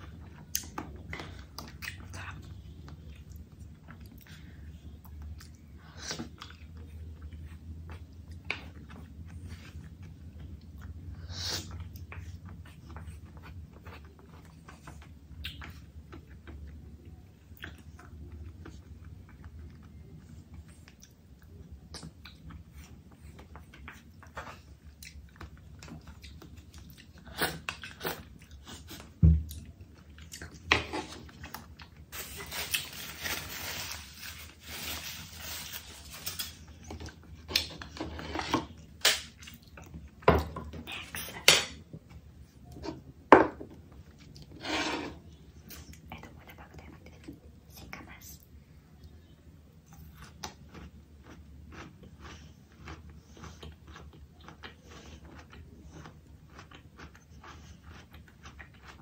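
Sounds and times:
chewing and biting: 0:49.9 - 0:59.0.

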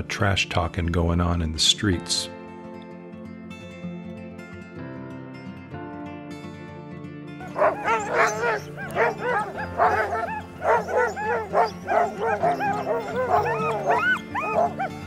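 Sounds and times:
soft music: 0:00.0 - 0:15.0
sled dogs barking and yipping: 0:07.4 - 0:15.0.

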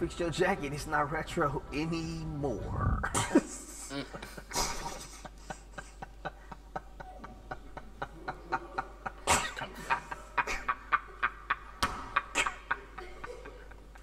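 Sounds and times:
loud laugh or cough: 0:03.1 - 0:06.4, 0:09.2 - 0:13.8
stifled breathy laughter: 0:03.1 - 0:11.6.

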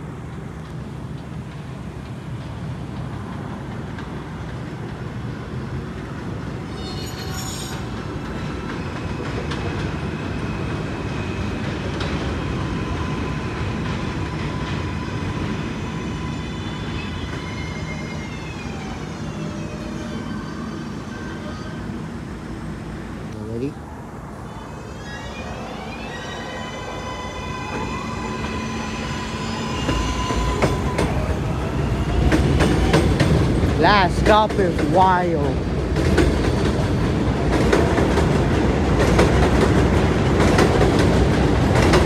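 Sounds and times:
train wheels rumbling on rail: 0:00.0 - 0:23.3, 0:24.2 - 0:42.0
brief high squeal: 0:06.7 - 0:07.9, 0:24.6 - 0:28.0.

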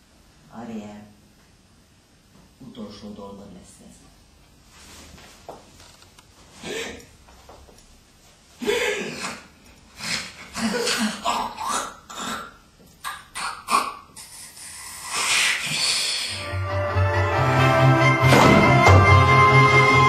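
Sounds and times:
person breathing and hissing: 0:08.6 - 0:11.2, 0:14.1 - 0:16.5.

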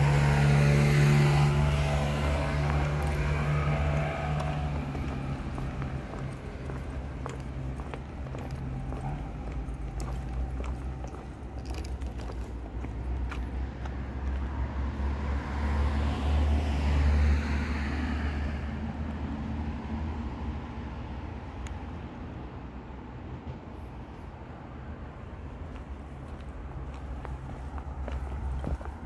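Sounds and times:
vehicle passing by: 0:00.0 - 0:20.8.

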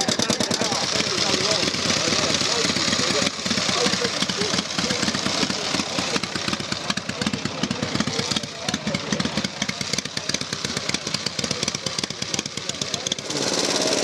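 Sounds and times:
motorcycle engine running at low speed: 0:00.0 - 0:14.0.

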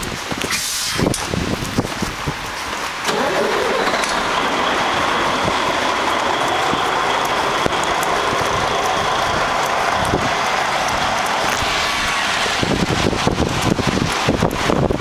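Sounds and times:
vehicle engine running: 0:03.0 - 0:15.0.

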